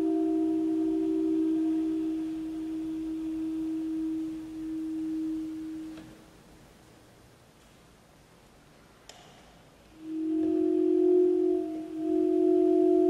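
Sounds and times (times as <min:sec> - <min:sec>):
saxophone holding soft note: 0:10.0 - 0:13.0.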